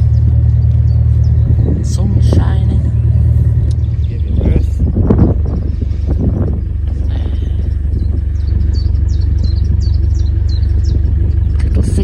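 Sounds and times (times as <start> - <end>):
diesel engine rumbling: 0.0 - 12.0
small bird chirping: 2.8 - 11.6.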